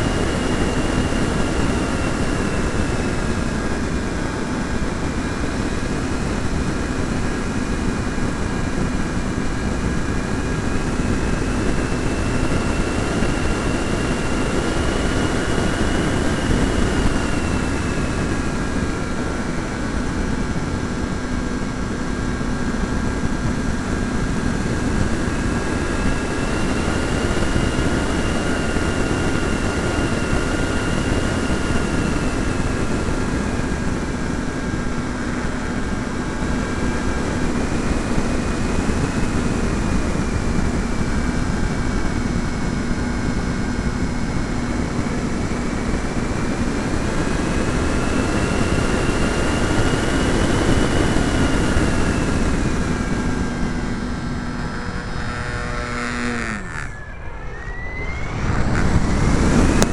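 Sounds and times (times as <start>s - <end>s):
electric motor and propeller whine: 0.0s - 59.9s
wind rushing: 57.4s - 59.9s.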